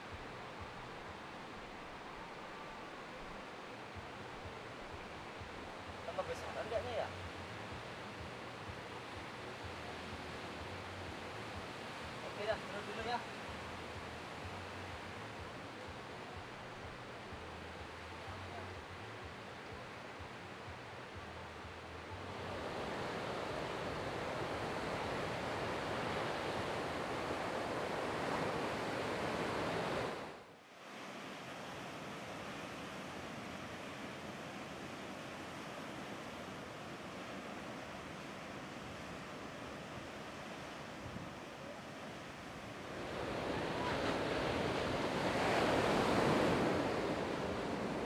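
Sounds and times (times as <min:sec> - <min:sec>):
ocean surf breaking: 0:22.2 - 0:48.0.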